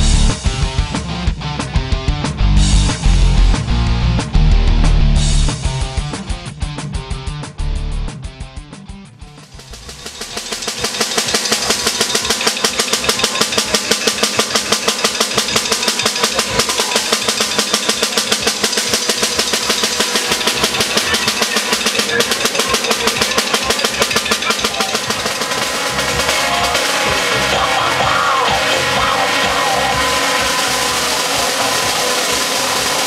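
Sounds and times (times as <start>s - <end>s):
snare drum strokes: 9.4s - 33.0s.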